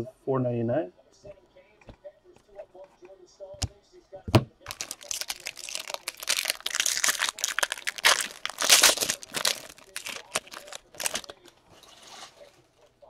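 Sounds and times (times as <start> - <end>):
foil wrapper crinkling and tearing: 4.7 - 11.5.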